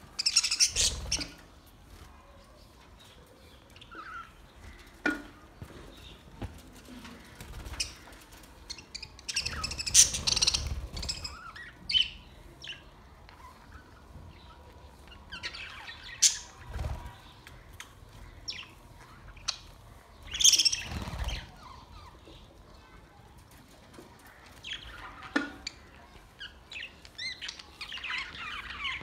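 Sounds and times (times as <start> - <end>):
budgerigars chirping: 9.3 - 11.8.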